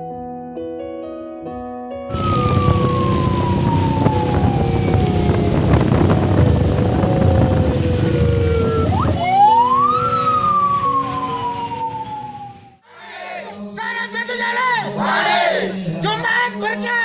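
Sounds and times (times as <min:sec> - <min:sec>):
loud rumbling noise: 0:02.1 - 0:12.8
police siren wailing: 0:02.1 - 0:12.8.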